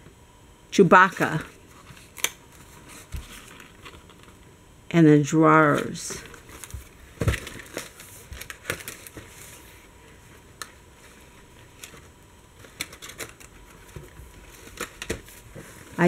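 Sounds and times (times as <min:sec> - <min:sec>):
card pages rustling and clicking: 0:05.8 - 0:09.7, 0:10.6 - 0:15.9.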